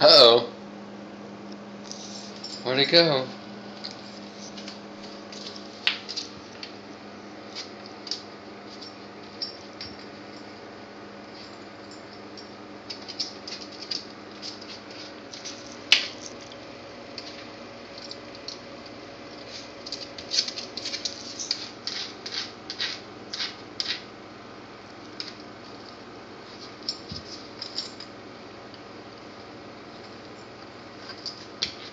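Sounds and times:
faint steady hum: 0.0s - 31.9s
metal collar tags jingling: 1.9s - 3.0s, 8.0s - 10.6s, 11.4s - 16.4s, 26.8s - 28.1s.

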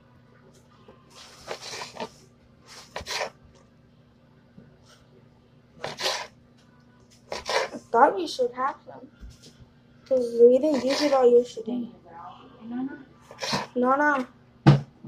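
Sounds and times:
knife cutting cucumber: 2.8s - 3.4s.

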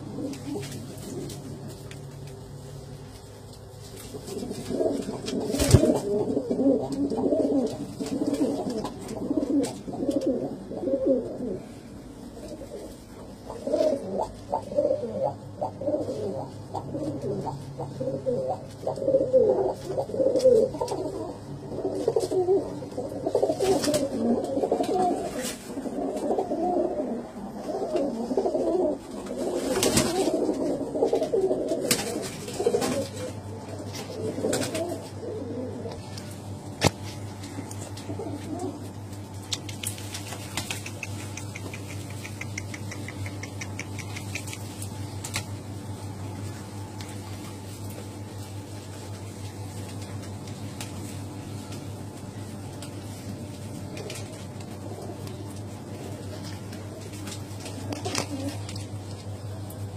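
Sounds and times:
pigeons cooing: 0.0s - 59.9s
sharp clicks: 39.5s - 45.5s.

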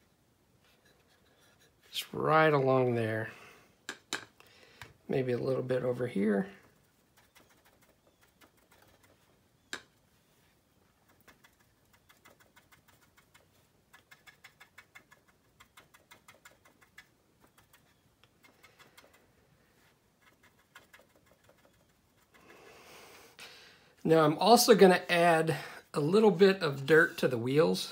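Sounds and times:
brush tapping paint on plastic: 6.8s - 10.0s, 11.0s - 19.3s.

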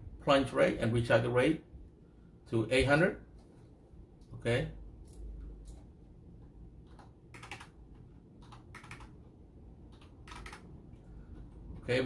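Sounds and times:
computer keyboard typing: 5.0s - 11.9s.

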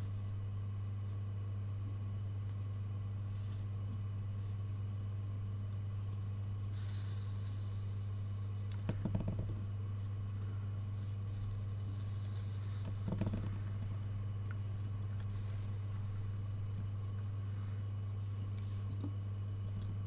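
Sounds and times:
solder flux hissing and sizzling: 0.0s - 5.0s, 5.6s - 18.9s
low electrical hum: 0.0s - 20.0s.

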